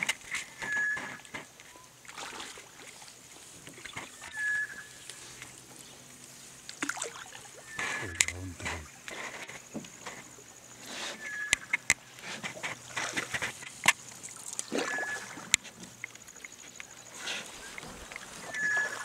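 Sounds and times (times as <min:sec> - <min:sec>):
water swishing around canoe: 0:00.0 - 0:19.0
brief high squeak: 0:00.6 - 0:01.2, 0:04.2 - 0:04.9, 0:14.9 - 0:15.3.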